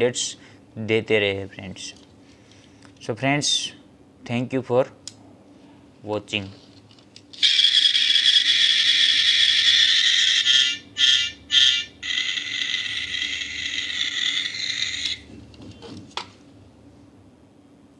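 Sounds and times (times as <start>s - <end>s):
toy jeep high buzzing: 7.4s - 15.3s.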